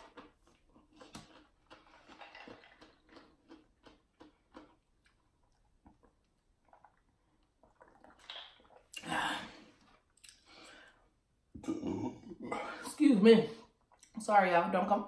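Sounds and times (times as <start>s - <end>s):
person chewing food: 0.0s - 9.0s.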